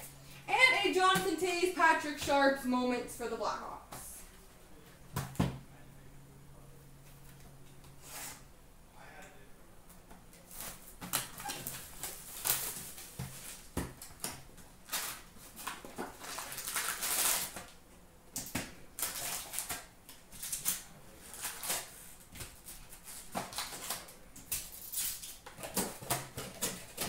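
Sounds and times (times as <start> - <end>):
foil wrapper crinkling: 10.5 - 17.8, 18.9 - 27.0.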